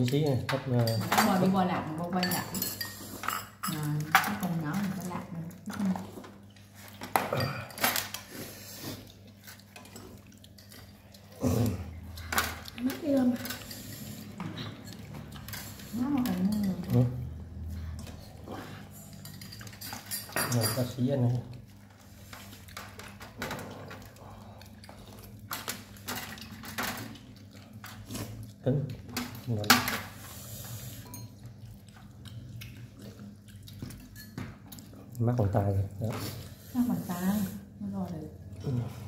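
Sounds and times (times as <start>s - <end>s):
bowls and cutlery clinking: 0.0s - 6.1s, 9.4s - 21.8s, 25.4s - 36.0s.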